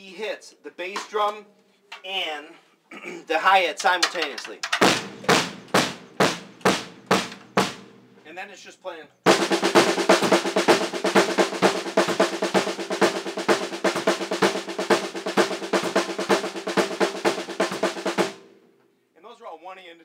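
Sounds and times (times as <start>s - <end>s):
snare drum rolls: 4.0s - 8.0s, 9.3s - 18.5s
bass drum: 4.8s - 8.0s, 9.3s - 18.4s.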